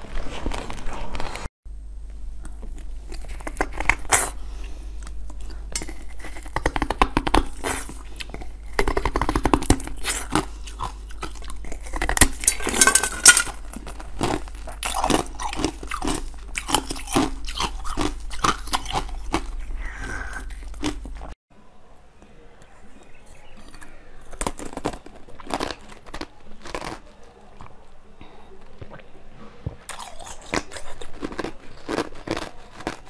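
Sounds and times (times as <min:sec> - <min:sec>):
biting and chewing crackles: 0:00.0 - 0:21.4, 0:22.6 - 0:33.0
faint low hum: 0:00.0 - 0:33.0
wet mouth sounds: 0:05.0 - 0:12.7, 0:14.0 - 0:21.4, 0:28.8 - 0:29.2.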